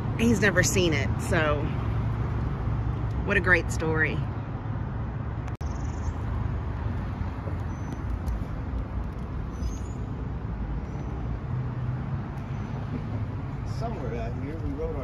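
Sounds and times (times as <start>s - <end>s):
road traffic passing: 0.0s - 15.0s.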